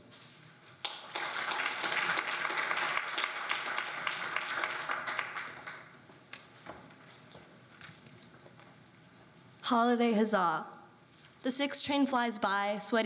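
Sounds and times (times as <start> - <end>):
audience applause: 0.8 - 6.0.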